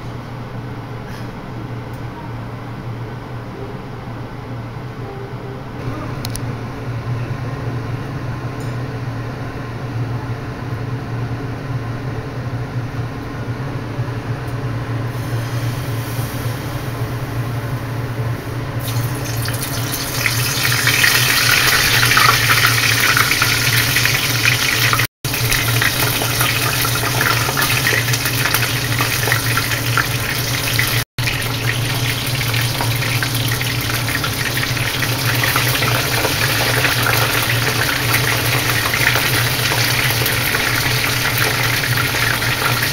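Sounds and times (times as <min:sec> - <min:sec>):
deep-frying sizzle: 0:18.8 - 0:42.9.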